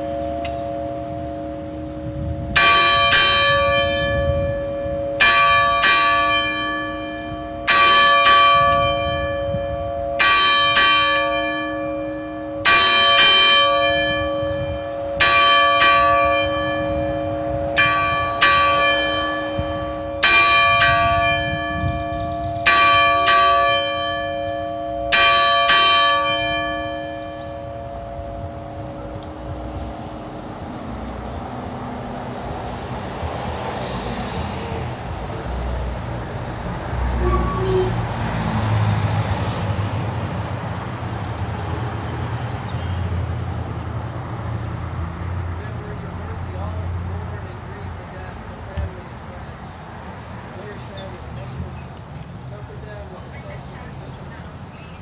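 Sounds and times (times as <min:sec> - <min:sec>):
church bell ringing: 0:00.0 - 0:32.1.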